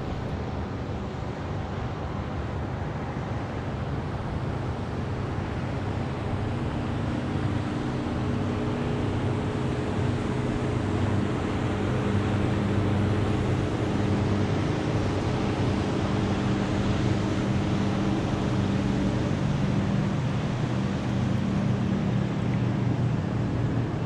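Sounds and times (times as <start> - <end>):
water rushing: 0.0 - 0.4
motorboat engine drone: 0.0 - 24.0
wind: 0.0 - 24.0.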